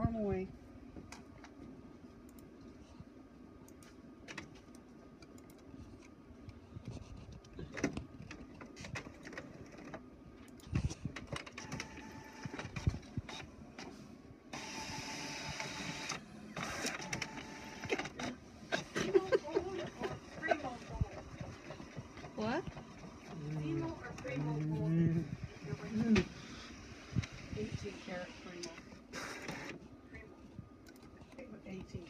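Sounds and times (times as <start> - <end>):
printer paper feed whir: 11.4 - 29.8.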